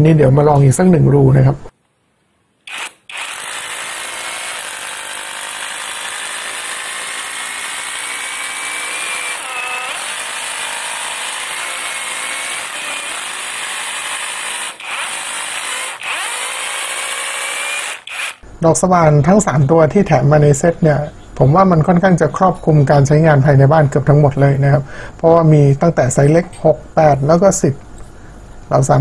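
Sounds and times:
rotary hammer drilling concrete: 2.7 - 18.4.

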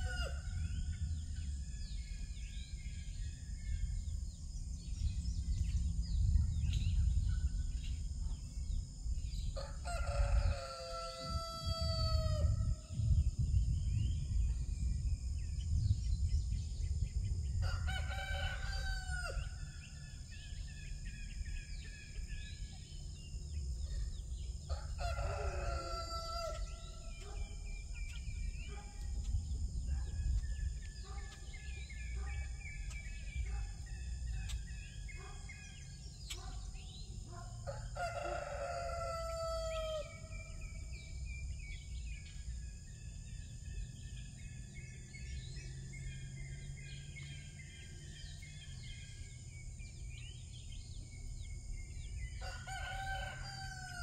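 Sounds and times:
steady low rumble: 0.5 - 9.6, 12.4 - 17.6, 26.8 - 35.2
rooster crowing: 9.6 - 12.8, 17.6 - 19.6, 24.7 - 27.1, 37.7 - 40.4, 52.4 - 54.0
bird chirps: 26.5 - 37.6.

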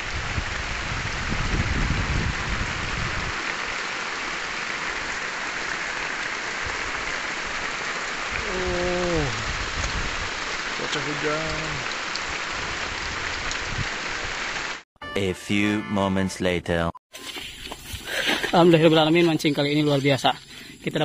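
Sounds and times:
rain falling on water: 0.0 - 14.8.

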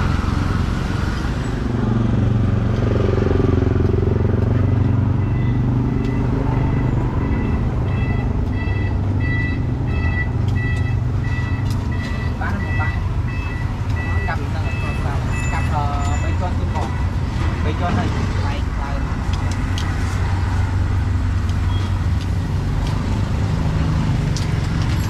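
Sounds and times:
vehicle engine rumbling: 0.0 - 25.0
electronic beeping: 4.6 - 16.3.

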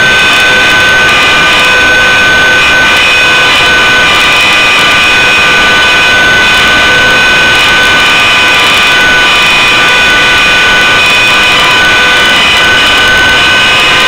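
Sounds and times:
model helicopter high whine: 0.0 - 14.0.

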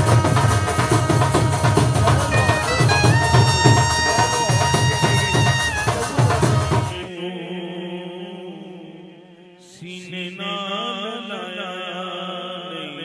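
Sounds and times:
rhythmic drum beat: 0.0 - 7.1
wavering melody line: 2.0 - 6.8.

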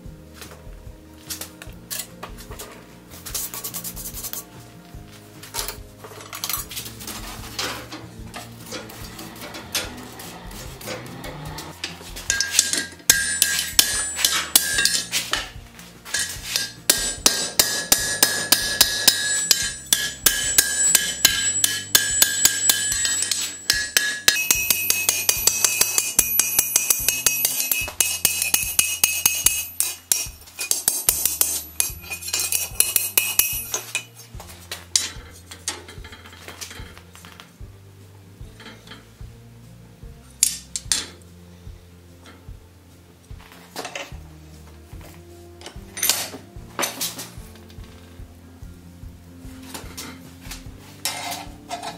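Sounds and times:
hammer blows on anvil: 8.2 - 34.1.

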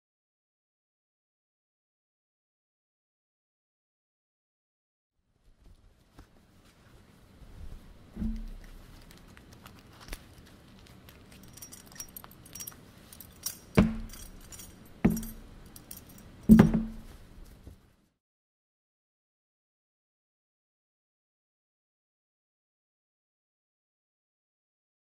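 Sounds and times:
dull thuds: 8.1 - 8.9, 13.8 - 15.6, 16.5 - 17.4
small metal pieces jingling: 11.1 - 16.6.

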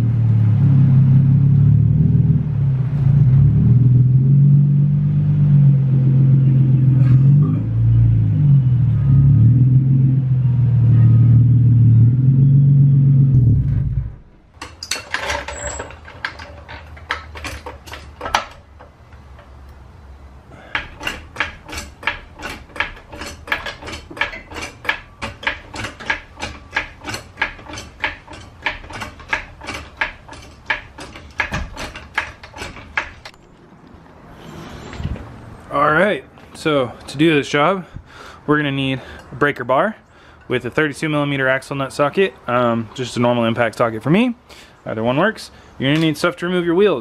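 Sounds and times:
floor jack clicking: 14.6 - 18.9, 20.6 - 33.4.

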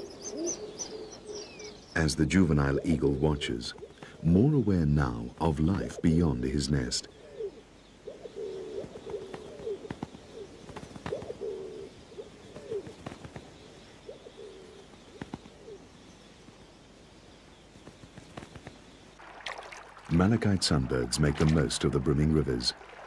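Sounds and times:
pigeons cooing: 0.0 - 4.8, 5.6 - 15.9.

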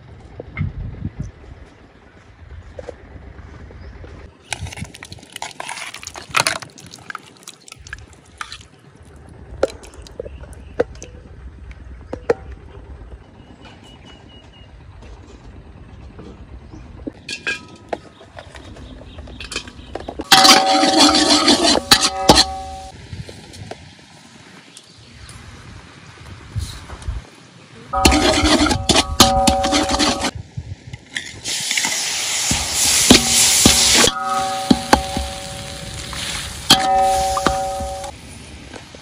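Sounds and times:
metal spatula scraping pan: 20.3 - 22.9, 28.0 - 30.3, 32.8 - 38.1
hiss: 31.4 - 34.1
oil sizzling in a wok: 31.4 - 39.0.

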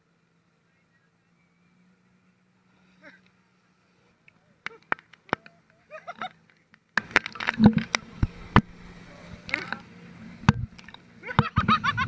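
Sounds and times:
water splashing against camera: 7.0 - 11.8.

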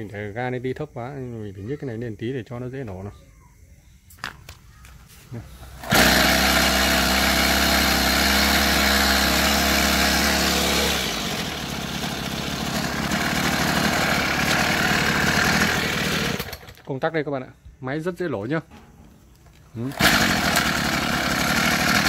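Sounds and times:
brush cutter engine running: 5.8 - 16.9, 19.8 - 22.0.

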